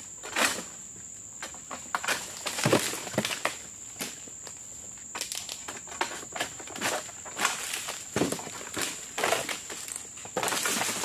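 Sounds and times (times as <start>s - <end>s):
dry fronds rustling and cracking: 1.7s - 4.3s, 5.1s - 11.0s.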